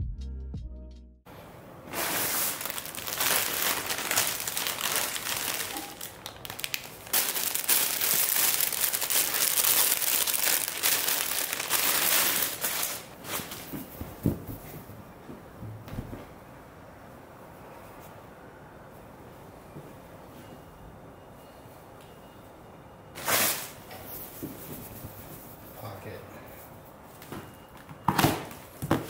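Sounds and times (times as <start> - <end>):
plastic bag crinkling: 1.9 - 13.6.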